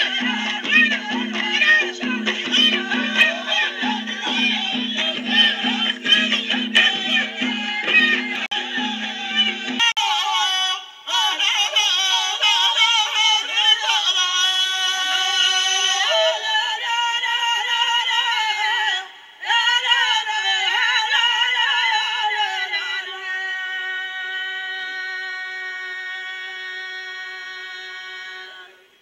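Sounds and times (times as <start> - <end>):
folk singing: 0.0 - 29.0.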